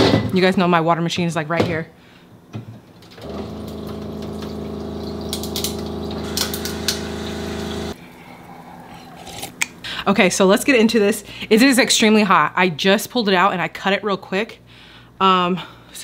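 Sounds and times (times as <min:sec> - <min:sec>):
water dispenser pump humming: 0:03.1 - 0:08.0.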